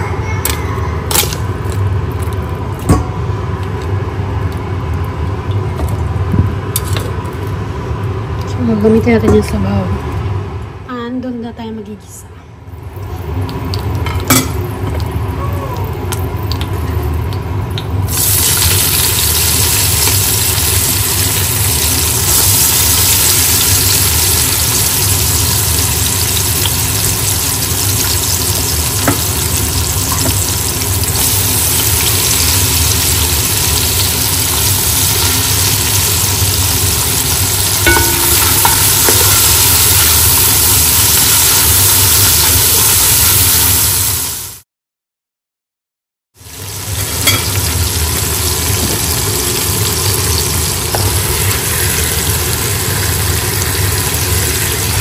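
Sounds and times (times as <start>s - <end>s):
steady low hum: 0.0s - 42.8s
onions sizzling in hot oil: 13.6s - 44.6s, 46.4s - 55.0s.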